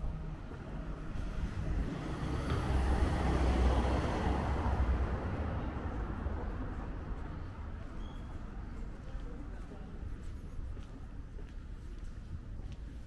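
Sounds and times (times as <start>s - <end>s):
vehicle passing by: 1.2s - 6.8s.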